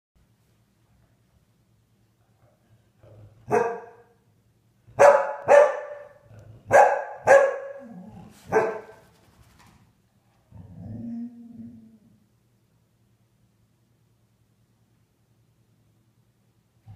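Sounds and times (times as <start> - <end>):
dog barking: 3.5 - 4.1, 4.9 - 9.0.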